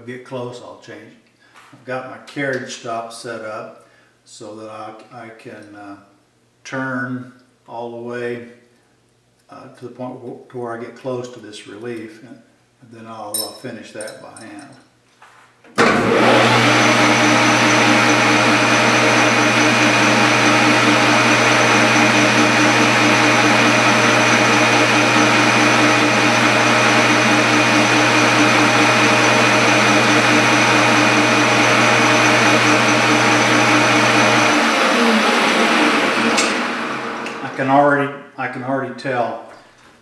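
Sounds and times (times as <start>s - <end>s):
metal lathe motor humming: 15.8s - 37.5s.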